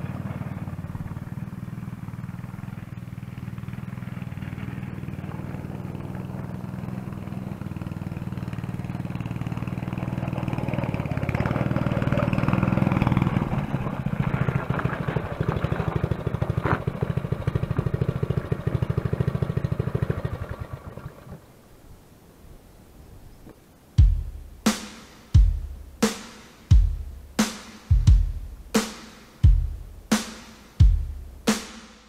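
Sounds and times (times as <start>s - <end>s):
small petrol engine running: 0.0s - 21.4s.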